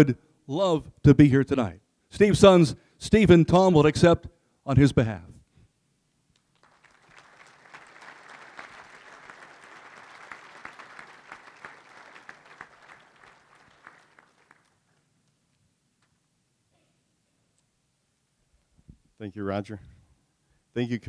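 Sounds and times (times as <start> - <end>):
audience applauding: 6.4 - 15.2.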